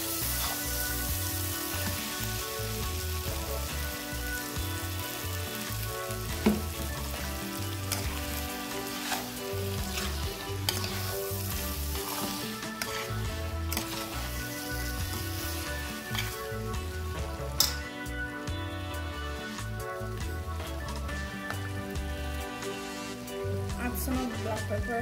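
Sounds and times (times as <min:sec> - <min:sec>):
food sizzling in a pot: 0:00.0 - 0:25.0
metal spoon scraping pot: 0:07.9 - 0:14.5.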